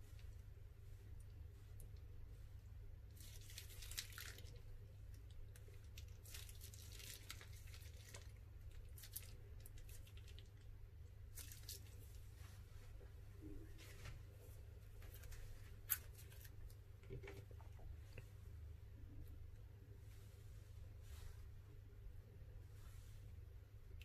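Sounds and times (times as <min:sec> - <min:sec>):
faint low hum: 0:00.0 - 0:24.0
plastic piping bags crinkling: 0:03.1 - 0:12.2.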